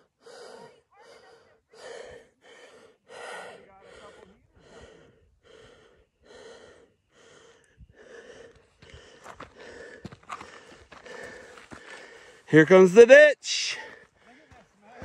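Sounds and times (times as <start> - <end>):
person panting heavily: 0.0 - 12.5, 13.6 - 15.0
footsteps on dirt trail: 8.1 - 13.1, 13.8 - 15.0.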